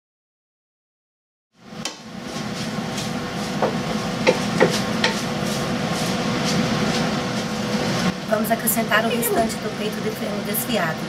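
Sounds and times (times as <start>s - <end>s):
wooden spatula stirring in frying pan: 1.9s - 8.1s
spatula knocking against pan: 3.6s - 5.2s.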